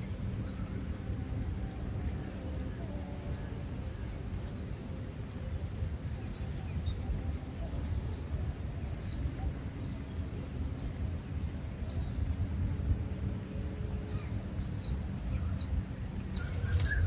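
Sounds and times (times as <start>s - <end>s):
nestlings chirping: 16.3s - 17.0s.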